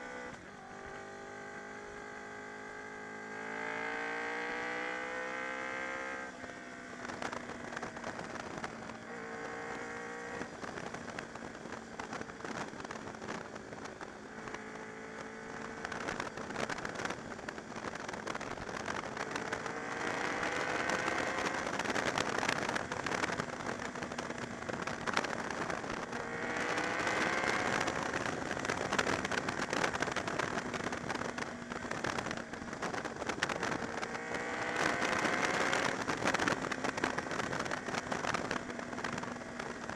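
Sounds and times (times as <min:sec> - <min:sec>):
motorcycle engine revving: 0:00.0 - 0:39.9
wind buffeting on microphone: 0:15.6 - 0:39.9.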